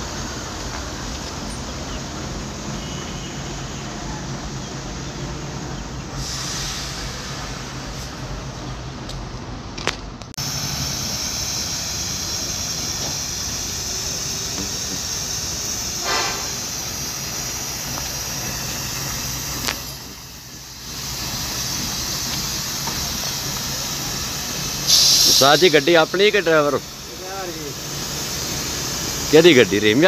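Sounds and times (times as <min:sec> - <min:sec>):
truck engine idling: 0:00.0 - 0:30.0
short pitched sound: 0:15.8 - 0:17.3.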